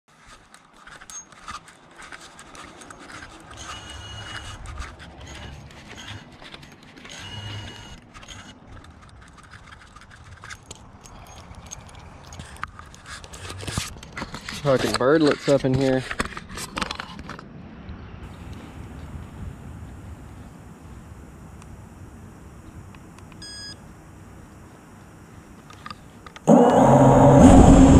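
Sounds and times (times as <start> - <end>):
camera handling clicks and knocks: 16.0 - 17.4
low rumble: 26.5 - 27.9.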